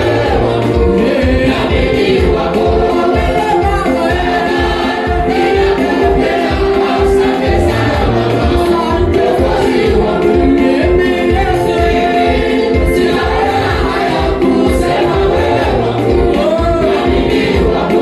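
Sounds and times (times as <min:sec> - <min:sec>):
choir singing gospel: 0:00.0 - 0:18.0
steady drum beat: 0:00.0 - 0:18.0.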